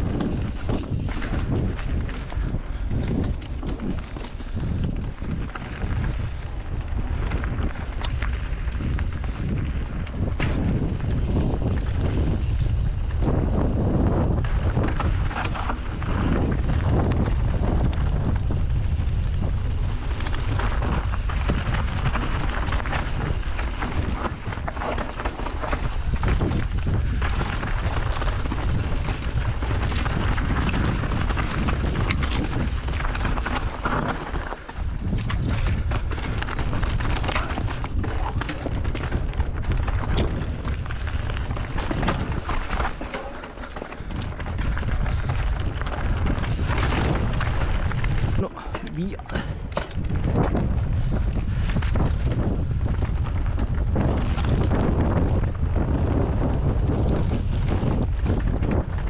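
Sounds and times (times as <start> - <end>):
mountain bike clattering: 0.0 - 59.0
wind buffeting microphone: 0.0 - 59.0.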